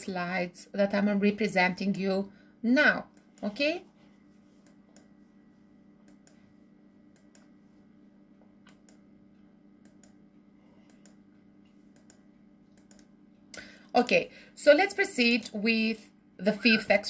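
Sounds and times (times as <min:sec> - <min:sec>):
low steady hum: 0:00.0 - 0:17.0
faint computer clicking: 0:04.6 - 0:05.1, 0:06.0 - 0:06.5, 0:07.1 - 0:07.6, 0:08.6 - 0:13.7.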